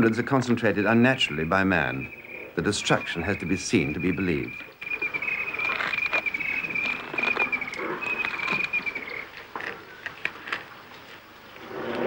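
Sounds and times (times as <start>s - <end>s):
bark and wood cracking: 4.6s - 11.1s.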